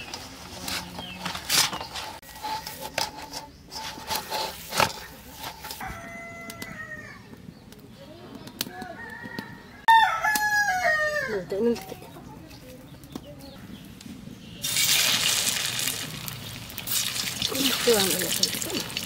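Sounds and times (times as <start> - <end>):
rooster crowing: 5.8 - 7.3, 8.8 - 11.4
food sizzling in hot oil: 14.6 - 19.0.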